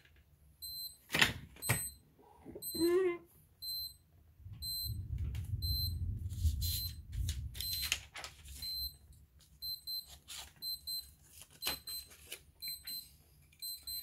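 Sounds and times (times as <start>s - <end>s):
timer beeping: 0.6s - 1.0s, 2.6s - 5.0s, 5.6s - 7.9s, 8.6s - 9.0s, 9.6s - 14.0s
low rumble of handling: 4.4s - 8.5s
paper rustling: 6.2s - 12.5s.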